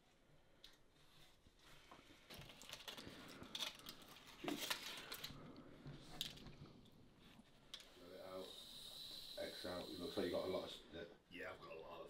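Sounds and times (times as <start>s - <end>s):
foil wrapper crinkling: 2.3s - 5.4s.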